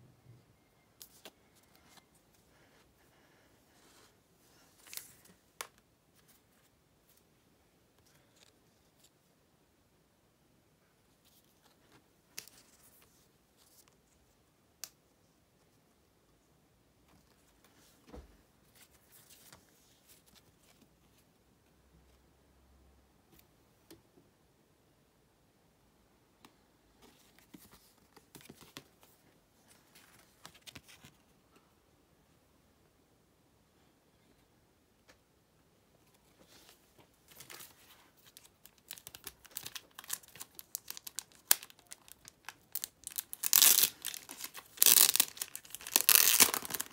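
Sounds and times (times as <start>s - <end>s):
photo cards being handled: 1.0s - 2.8s, 3.8s - 7.3s, 27.0s - 31.3s, 36.0s - 46.9s
paper rustling: 36.0s - 46.9s.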